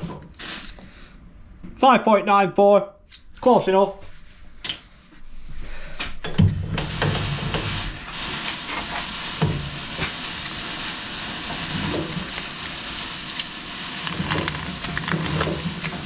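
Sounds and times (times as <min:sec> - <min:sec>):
steady hiss: 0:00.0 - 0:01.2, 0:04.8 - 0:16.0.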